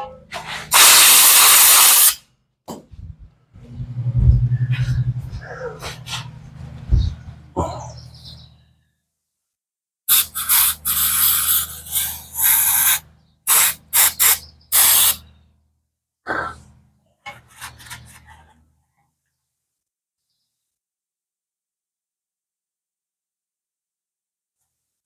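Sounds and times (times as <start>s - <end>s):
aerosol can spraying: 0.7s - 2.2s, 10.1s - 15.2s.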